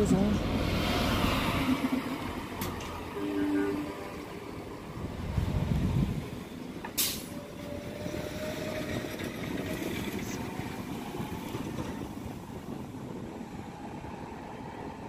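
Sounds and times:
sharp air hiss: 7.0s - 7.4s.

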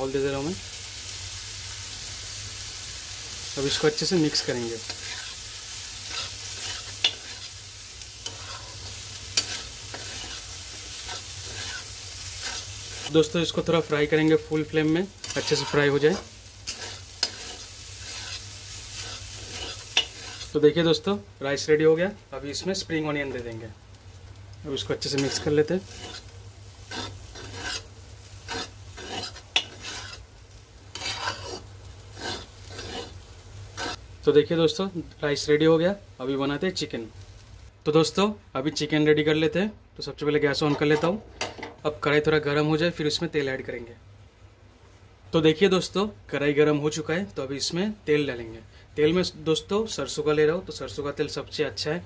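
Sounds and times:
frying sizzle: 0.0s - 52.0s
spatula stirring rice: 3.7s - 20.6s, 24.8s - 34.1s.

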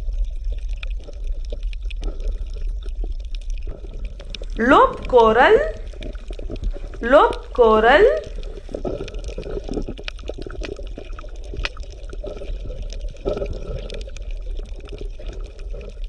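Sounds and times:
underwater bubbling and gurgling: 0.0s - 4.6s, 5.7s - 7.0s, 8.2s - 16.0s.

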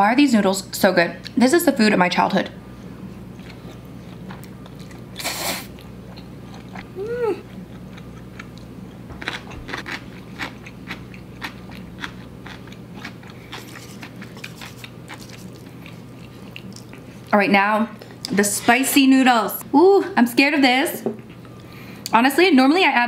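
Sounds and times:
wet chewing and mouth clicks: 3.4s - 17.4s
person humming: 6.9s - 7.6s.

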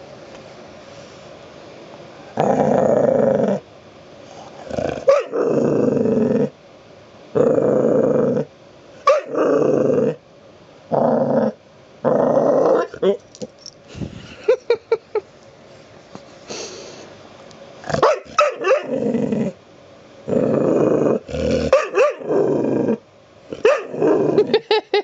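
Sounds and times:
puppy growling: 2.3s - 3.6s, 4.4s - 6.6s, 7.3s - 8.5s, 9.2s - 10.2s, 10.9s - 13.2s, 17.8s - 19.6s, 20.2s - 24.8s.

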